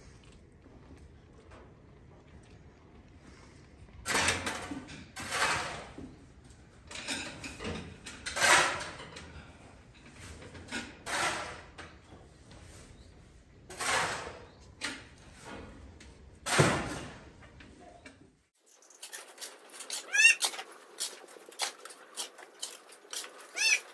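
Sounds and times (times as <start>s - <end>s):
shovel scraping concrete floor: 4.1s - 6.1s, 8.2s - 9.1s, 10.2s - 11.8s, 13.7s - 14.6s, 16.5s - 17.2s, 18.7s - 23.9s.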